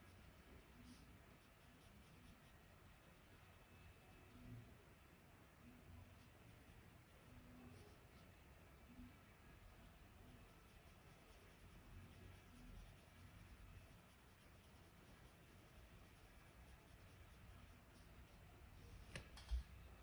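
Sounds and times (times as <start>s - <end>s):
pencil scratching on paper: 0.0s - 4.5s, 10.2s - 18.3s.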